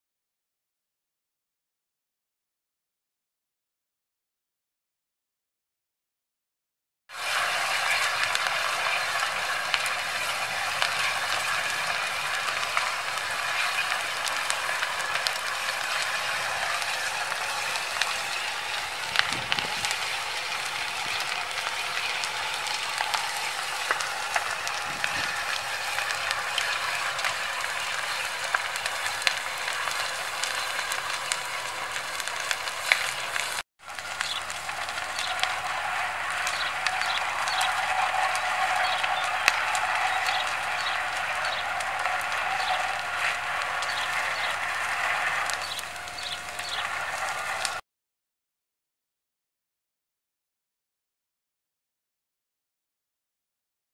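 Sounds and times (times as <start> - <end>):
fire crackling: 7.1 - 47.8.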